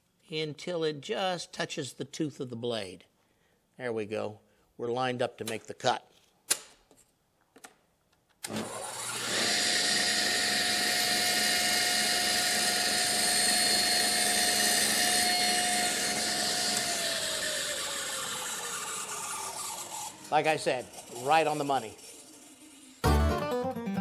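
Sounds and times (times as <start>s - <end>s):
table saw whine: 8.5s - 23.1s.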